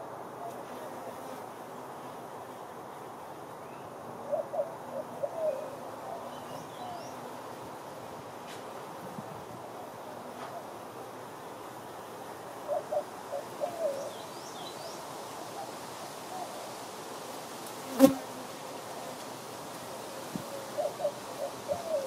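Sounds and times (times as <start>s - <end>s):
honeybees buzzing: 4.8s - 15.0s, 17.0s - 22.0s.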